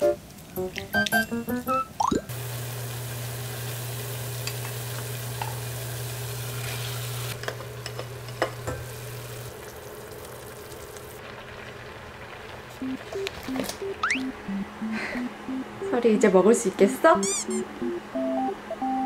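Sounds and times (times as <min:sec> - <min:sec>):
water boiling in a pot: 0:02.3 - 0:14.1
low hum: 0:12.8 - 0:16.4.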